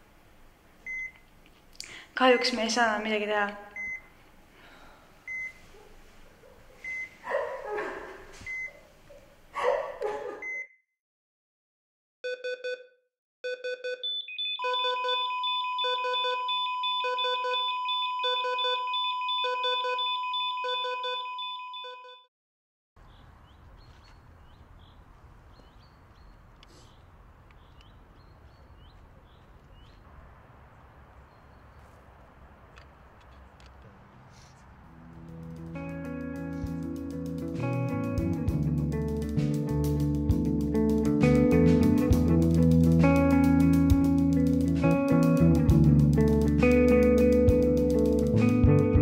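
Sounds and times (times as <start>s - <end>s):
heart monitor beeping: 0.9s - 1.2s, 3.8s - 4.1s, 5.3s - 5.6s, 6.8s - 7.1s, 8.5s - 8.7s, 12.2s - 22.2s
monitor alarm beeps: 3.8s - 4.1s, 5.3s - 5.6s, 6.9s - 7.1s, 12.3s - 22.3s
birds chirping: 23.0s - 35.5s.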